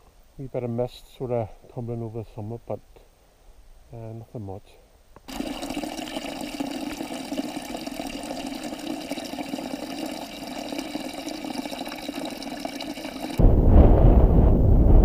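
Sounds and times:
water trickling into pool: 5.3s - 13.4s.

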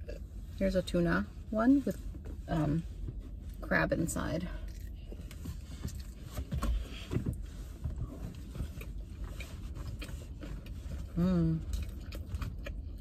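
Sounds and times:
low steady rumble: 0.0s - 13.0s
person chewing: 4.6s - 7.0s, 8.2s - 13.0s.

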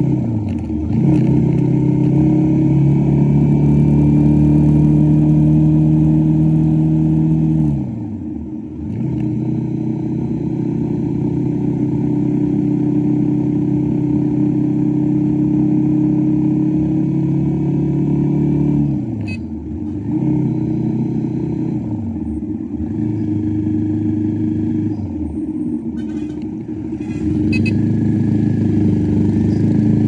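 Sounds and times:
motorcycle engine running: 19.1s - 30.0s.

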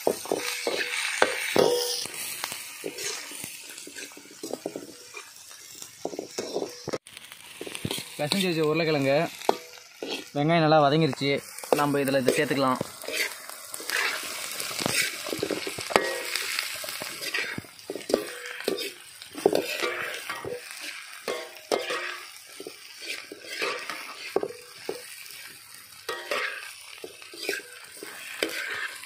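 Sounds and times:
food sizzling in oil: 0.0s - 29.0s
skimmer scraping against pan: 2.8s - 5.3s, 9.5s - 10.4s, 11.7s - 25.5s, 26.1s - 29.0s.

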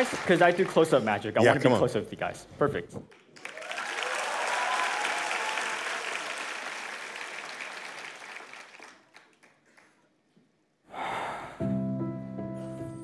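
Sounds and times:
studio audience applauding: 0.0s - 1.4s, 3.1s - 10.0s.

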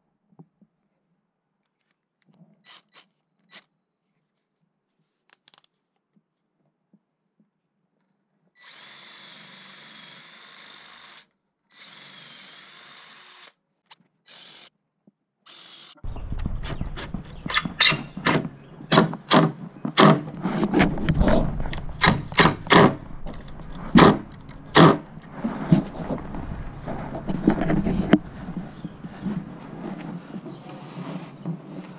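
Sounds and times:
cordless drill spinning: 8.6s - 13.6s, 14.2s - 14.7s, 15.5s - 18.2s
wind rumble on microphone: 16.0s - 18.9s, 19.7s - 30.7s
cordless driver driving screws: 16.6s - 29.4s.

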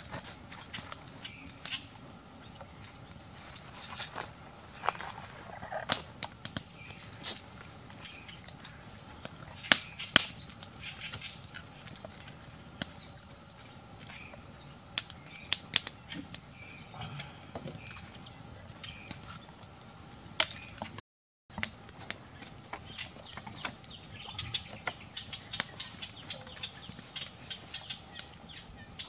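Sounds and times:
high insect buzz: 0.0s - 20.9s
birds chirping: 0.0s - 21.0s, 22.2s - 29.0s.

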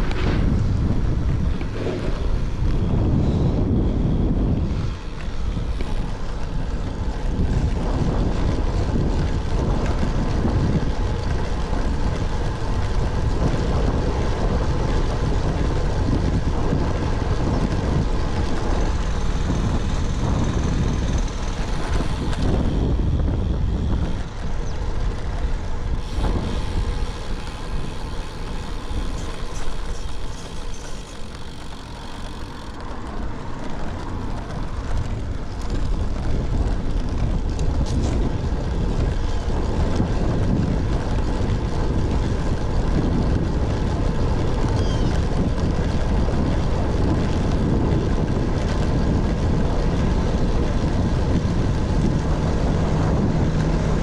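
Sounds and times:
wind rushing over microphone: 0.0s - 54.0s.

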